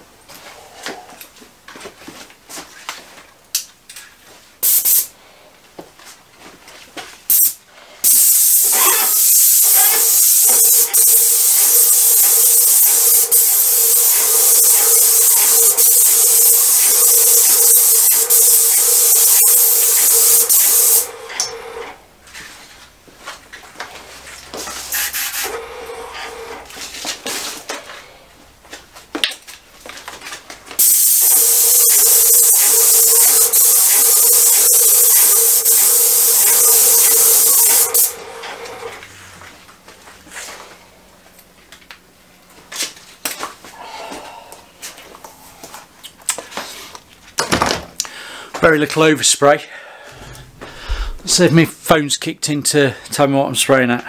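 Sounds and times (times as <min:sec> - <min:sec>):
paint sprayer hissing: 0:04.6 - 0:05.1, 0:07.3 - 0:22.0, 0:24.8 - 0:26.7, 0:30.8 - 0:39.0
steady hum: 0:08.8 - 0:22.3.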